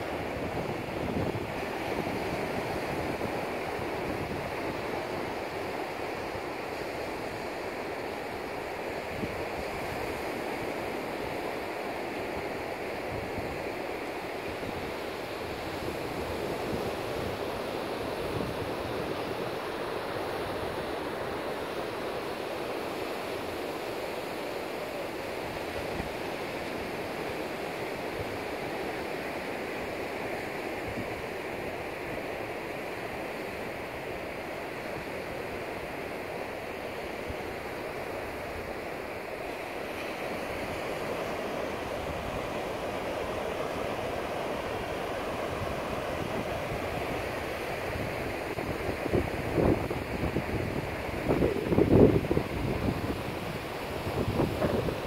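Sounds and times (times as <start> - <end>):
ocean surf on sandy beach: 0.0 - 55.0.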